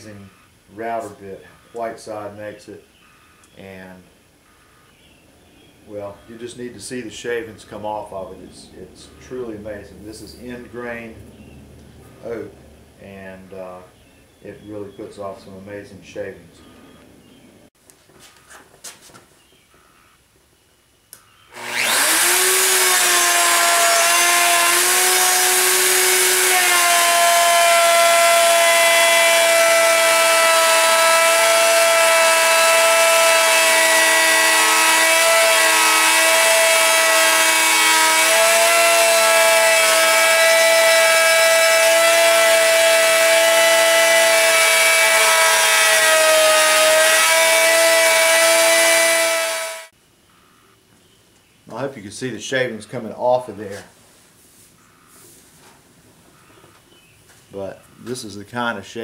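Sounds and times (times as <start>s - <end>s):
electric router whining: 21.5s - 49.9s
router cutting wood: 21.5s - 49.9s.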